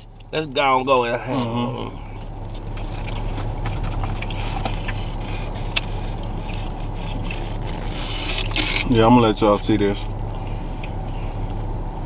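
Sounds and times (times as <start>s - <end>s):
car engine hum inside cabin: 0.0s - 12.0s
person chewing: 1.3s - 8.9s
foam container crackling: 4.0s - 8.9s.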